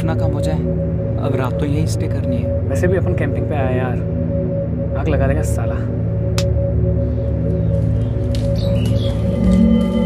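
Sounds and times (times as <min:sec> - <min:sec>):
dark low drone score: 0:00.0 - 0:10.0
high bird-like chirps: 0:07.0 - 0:09.4.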